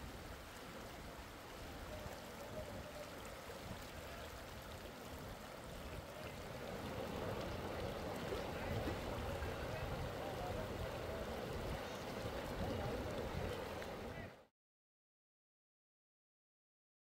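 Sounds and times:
floodwater rushing: 0.0s - 14.5s.

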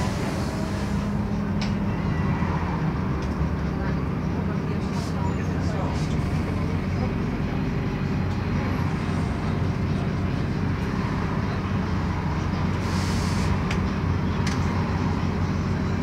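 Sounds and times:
bus diesel engine idling: 0.0s - 16.0s
short hiss: 12.8s - 13.5s.

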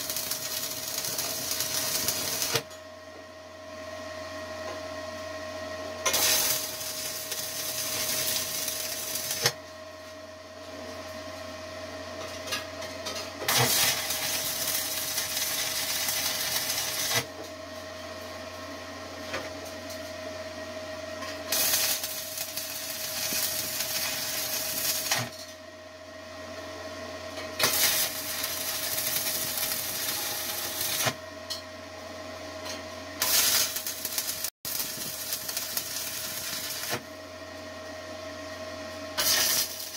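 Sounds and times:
welding arc crackling: 0.0s - 2.6s, 6.1s - 9.6s, 13.4s - 17.3s, 21.5s - 25.3s, 27.6s - 31.2s, 33.2s - 37.1s, 39.2s - 39.9s.

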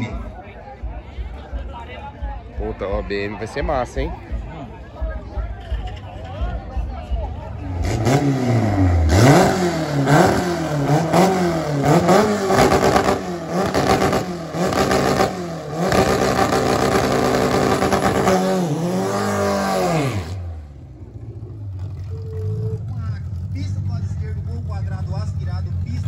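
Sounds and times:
car engine revving: 7.4s - 26.0s.

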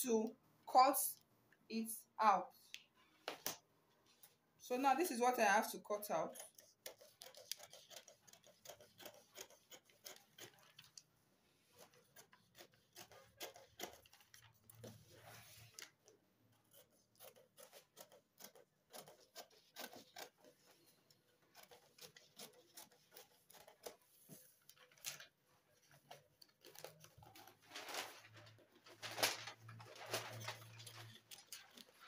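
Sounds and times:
scissors snipping paper: 6.1s - 11.1s, 11.8s - 32.0s
paper rustling: 6.4s - 16.1s, 16.7s - 32.0s.

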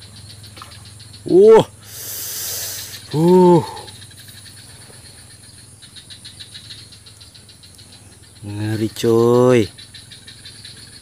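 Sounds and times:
faint high hum: 0.0s - 9.6s
man's short vocal sound: 3.1s - 3.9s.

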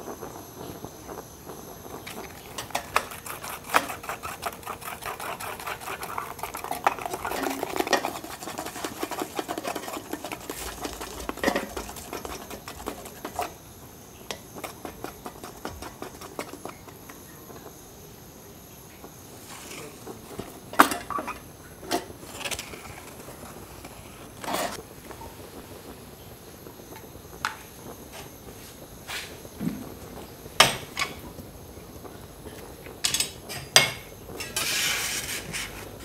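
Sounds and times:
stick scraping metal ladle: 2.6s - 13.6s, 14.3s - 17.0s, 34.4s - 35.8s.

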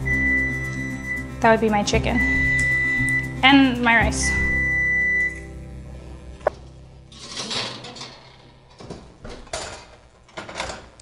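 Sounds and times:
pans scraping and rattling: 7.1s - 10.9s.

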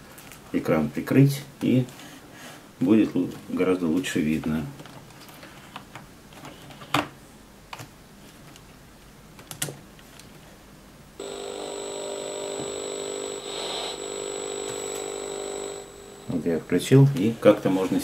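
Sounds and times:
tv speaker buzzing: 11.2s - 17.4s.

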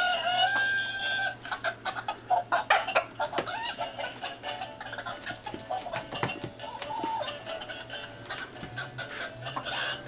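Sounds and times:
rooster crowing: 0.0s - 1.4s
choppy clucking calls: 1.1s - 10.0s.

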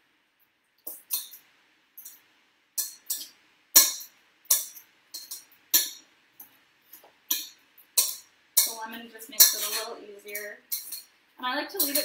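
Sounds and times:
fork scraping metal bowl: 7.3s - 11.1s, 11.8s - 12.0s.

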